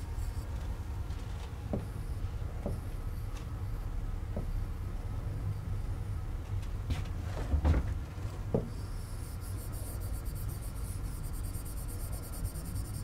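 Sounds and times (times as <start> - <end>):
stylus scratching on screen: 8.8 - 13.0.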